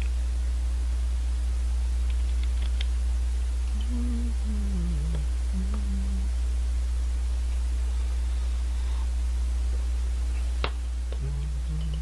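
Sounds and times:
electrical hum: 0.0 - 12.0
man humming: 3.7 - 6.4, 11.1 - 12.0.

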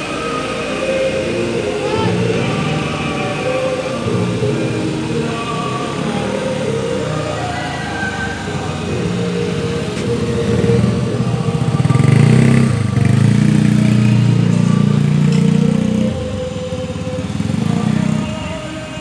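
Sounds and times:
motorcycle engine running: 8.7 - 18.8.

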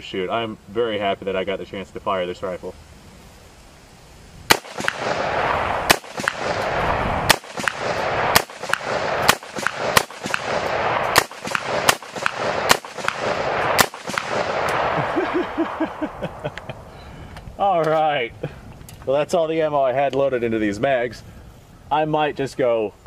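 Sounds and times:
rifle shots with echo: 4.5 - 16.0.

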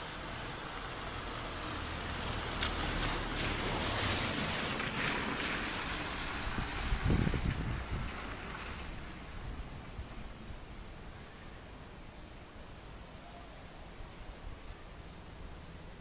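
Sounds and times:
wind hiss: 0.0 - 16.0
wind bumps on microphone: 4.6 - 10.3.

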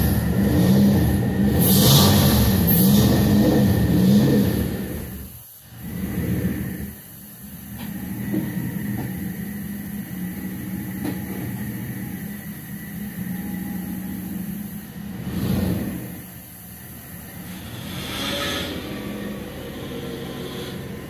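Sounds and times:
car engine running at low speed: 0.0 - 21.0.

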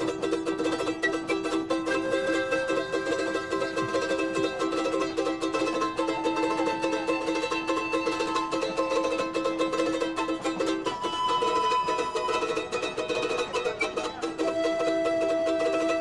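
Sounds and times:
plucked string instrument melody: 0.0 - 16.0
steady held notes: 0.0 - 16.0.

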